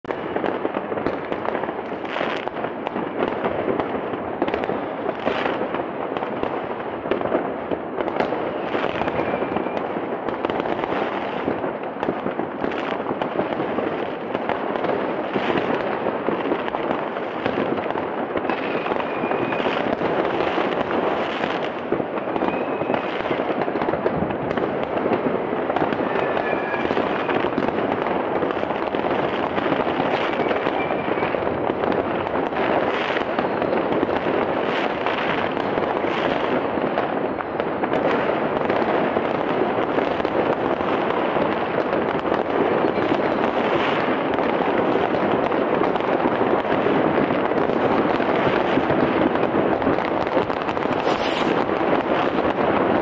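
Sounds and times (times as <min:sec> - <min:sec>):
fireworks crackling and popping: 0:00.0 - 0:53.0
sharp firework bangs: 0:00.0 - 0:53.0
firework whistles: 0:08.0 - 0:11.6, 0:17.4 - 0:36.6, 0:50.5 - 0:51.8.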